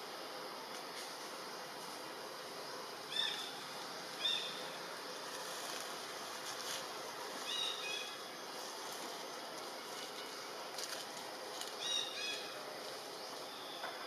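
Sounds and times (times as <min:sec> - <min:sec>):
steady forest hiss: 0:00.0 - 0:14.0.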